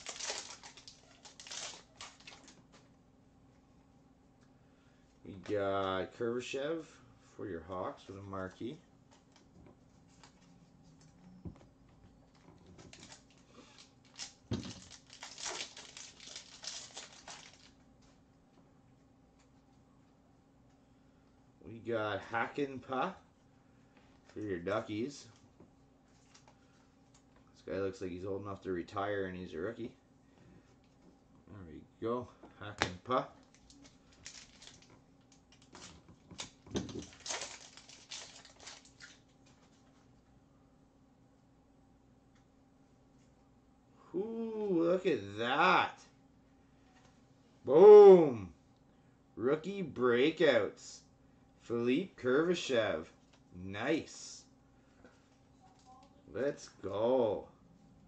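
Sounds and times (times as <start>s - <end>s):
wrapper tearing and crinkling: 0.0s - 2.6s, 12.8s - 17.8s, 33.4s - 39.3s.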